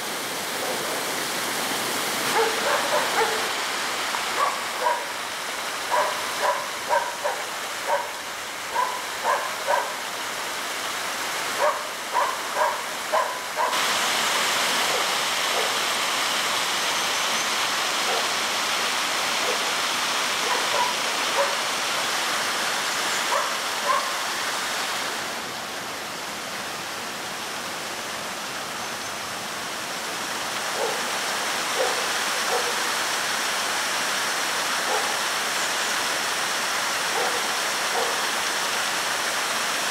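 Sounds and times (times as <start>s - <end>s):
stream rushing over rocks: 0.0s - 39.9s
animal barking: 2.3s - 3.5s, 4.4s - 5.1s, 5.9s - 10.0s, 11.6s - 13.8s, 20.4s - 21.6s, 23.3s - 24.1s, 30.8s - 31.0s, 31.8s - 32.8s, 37.2s - 38.2s.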